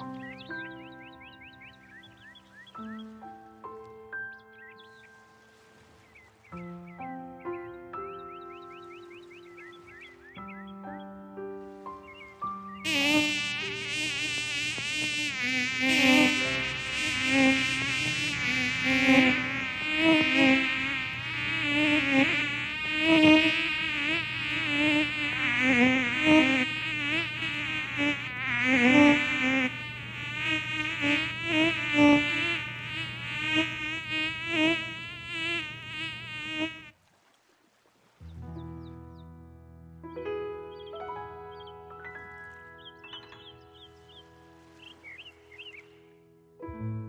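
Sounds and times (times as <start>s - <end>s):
mosquitoes whining: 12.9s - 36.9s.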